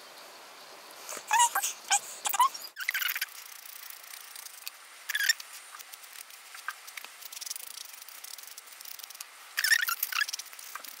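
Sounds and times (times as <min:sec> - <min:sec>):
nail buffer scratching fingernail: 0:02.3 - 0:11.0.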